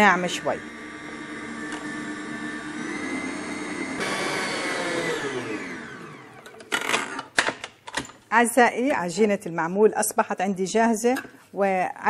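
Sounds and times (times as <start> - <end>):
stand mixer whining: 0.2 - 6.7.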